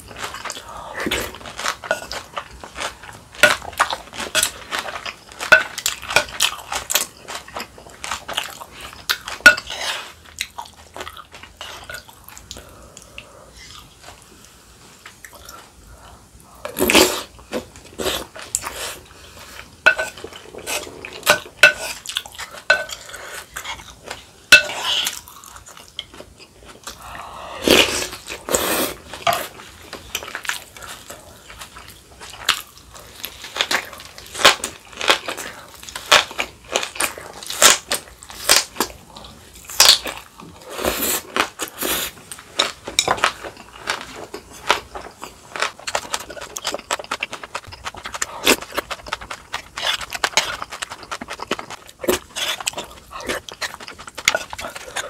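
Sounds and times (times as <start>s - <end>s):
chewing and crunching food: 0.0s - 55.0s
spoon scraping in stone bowl: 19.8s - 23.1s, 45.8s - 55.0s.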